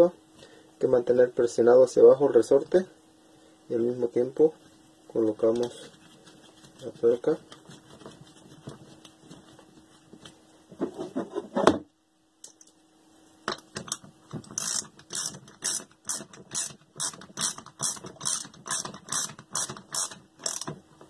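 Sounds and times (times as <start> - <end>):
ratchet wrench clicking: 13.9 - 20.8.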